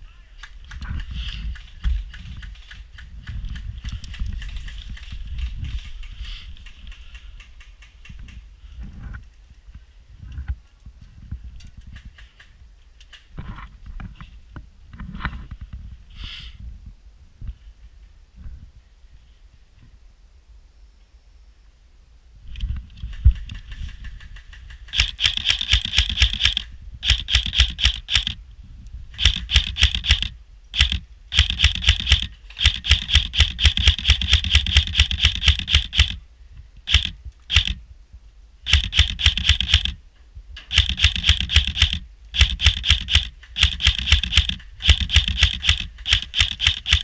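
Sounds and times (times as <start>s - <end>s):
airsoft rifle firing full-auto: 24.9s - 28.4s, 29.2s - 36.2s, 36.9s - 37.8s, 38.7s - 40.0s, 40.7s - 47.0s.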